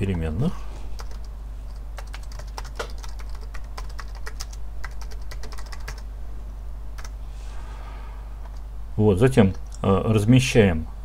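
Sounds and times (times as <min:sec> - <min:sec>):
computer keyboard typing: 0:01.0 - 0:06.0, 0:07.0 - 0:07.2.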